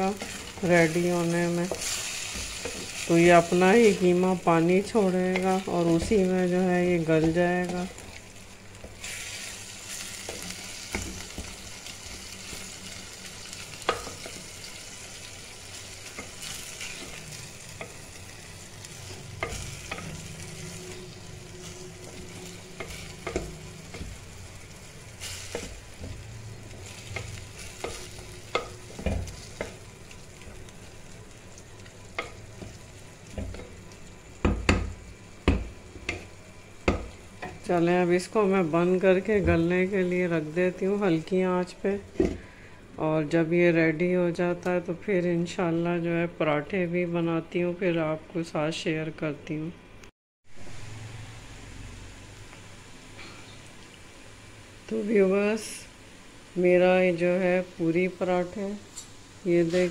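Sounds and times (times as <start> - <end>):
minced meat sizzling in pot: 0.0 - 45.6, 50.5 - 59.9.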